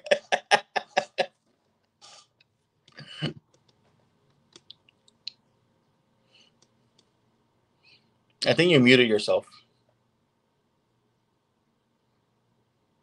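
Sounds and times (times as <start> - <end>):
man speaking: 0.0 - 1.3, 8.4 - 9.6
faint steady hum: 0.0 - 13.0.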